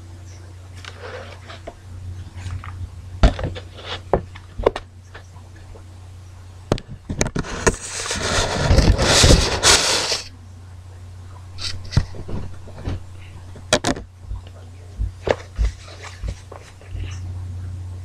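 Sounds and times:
plastic container scraping: 0:07.3 - 0:10.3.

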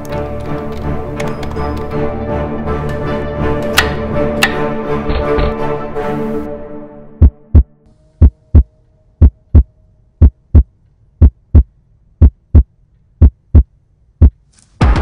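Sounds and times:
deep heartbeat thumps: 0:07.2 - 0:15.0.

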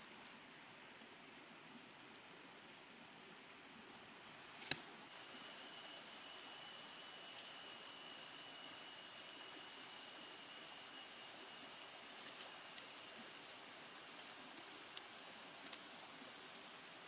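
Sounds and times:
high-pitched insect drone: 0:04.3 - 0:15.3
sharp click: 0:04.6 - 0:05.0.

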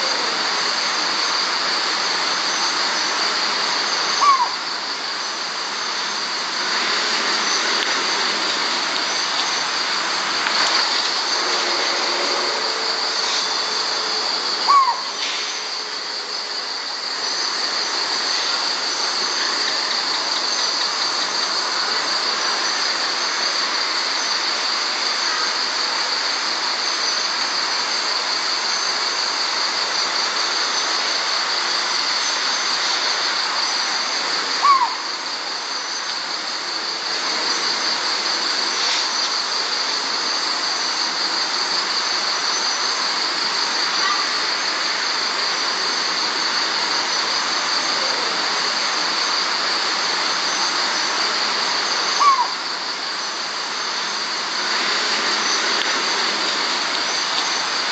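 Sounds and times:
crickets and night insects buzzing: 0:00.0 - 0:57.9
owl call: 0:04.1 - 0:04.7, 0:11.4 - 0:15.7, 0:34.6 - 0:35.3, 0:52.1 - 0:52.8.

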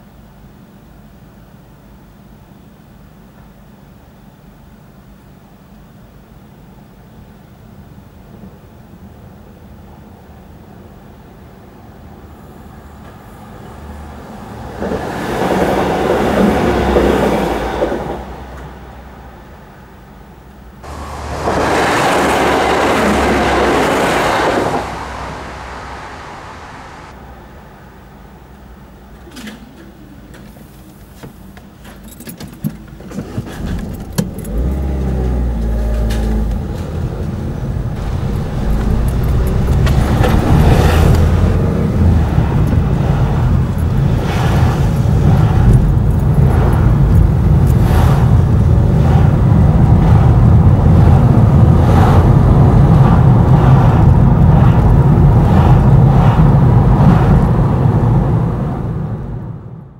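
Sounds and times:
car engine and road rumble: 0:07.4 - 0:59.9
knocks and rattles: 0:32.1 - 0:48.4.

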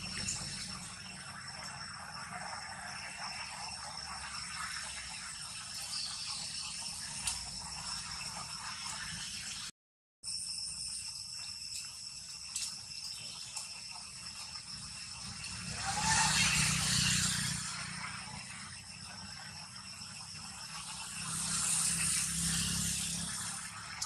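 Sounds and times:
high-pitched insect drone: 0:00.0 - 0:24.0
faint ticks: 0:11.7 - 0:13.8.

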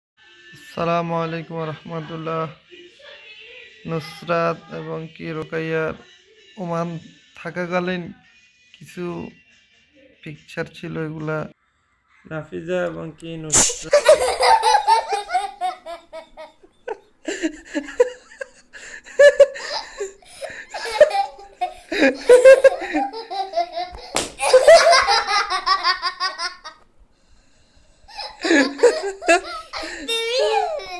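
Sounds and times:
girls giggling: 0:13.9 - 0:26.8, 0:28.1 - 0:30.9
girl speaking: 0:30.1 - 0:30.9.

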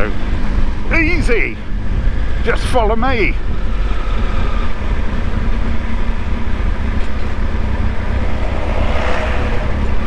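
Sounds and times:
motorcycle engine rumble: 0:00.0 - 0:10.0
air rushing past microphone: 0:08.0 - 0:10.0.

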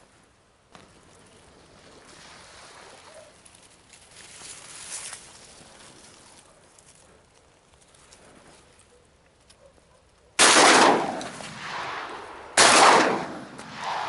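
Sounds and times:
shotgun shots with echo: 0:10.4 - 0:14.0.

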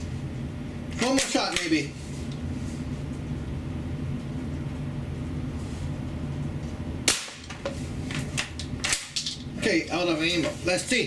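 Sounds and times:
air rifle firing: 0:07.1 - 0:07.5.

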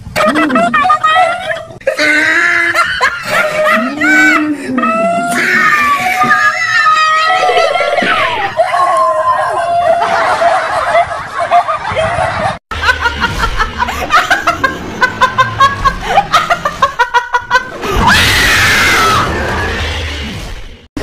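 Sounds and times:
woman laughing: 0:00.2 - 0:05.0, 0:09.7 - 0:17.7
loud scream: 0:02.0 - 0:10.4, 0:17.8 - 0:20.0.

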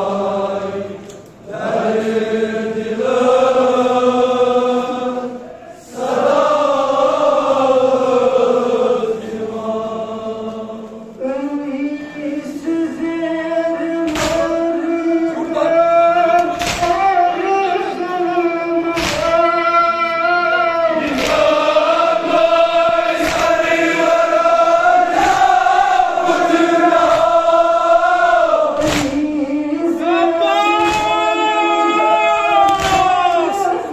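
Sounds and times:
men chanting in unison: 0:00.0 - 0:33.9
chest-beating slaps: 0:14.1 - 0:14.6, 0:16.4 - 0:17.0, 0:19.0 - 0:19.4, 0:21.1 - 0:21.7, 0:23.1 - 0:24.1, 0:27.0 - 0:27.4, 0:28.8 - 0:29.4, 0:30.8 - 0:31.2, 0:32.7 - 0:33.3.

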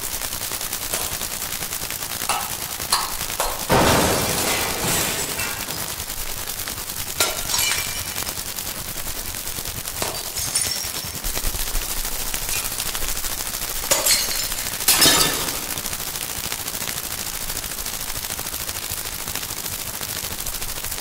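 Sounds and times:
noisy bursts: 0:00.0 - 0:16.5
dense rapid crackle: 0:00.0 - 0:21.0.

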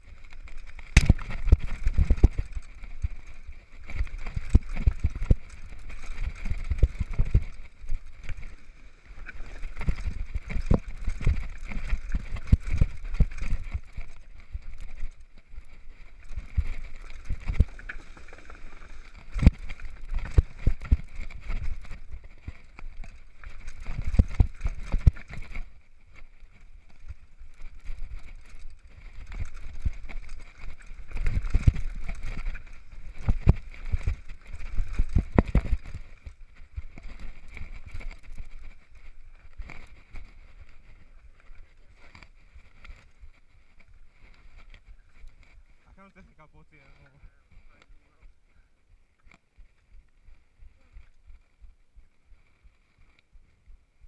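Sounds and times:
bike thumps and rattles: 0:00.2 - 0:03.1, 0:03.8 - 0:07.6.

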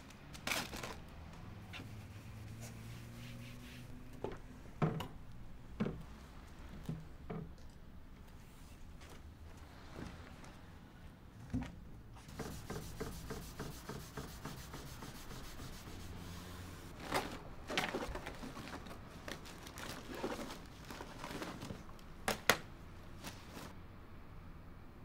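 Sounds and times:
hand rubbing on table: 0:01.7 - 0:04.0, 0:12.3 - 0:16.8.

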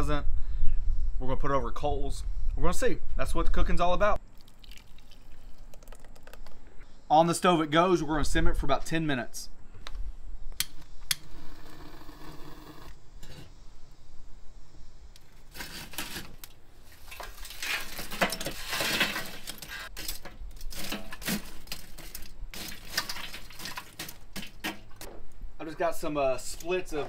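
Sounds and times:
metal tongs scraping coals: 0:15.2 - 0:25.0
charcoal clattering into grill: 0:15.5 - 0:25.1.

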